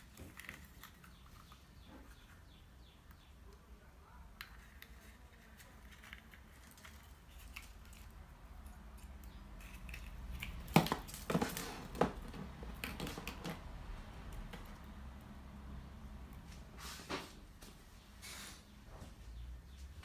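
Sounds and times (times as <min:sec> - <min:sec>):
plastic eggs clicking and knocking: 0:00.0 - 0:03.3, 0:04.3 - 0:15.4.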